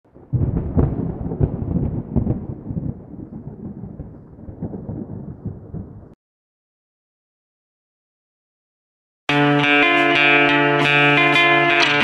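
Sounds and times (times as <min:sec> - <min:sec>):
thunder rumbling and cracking: 0:00.1 - 0:06.2.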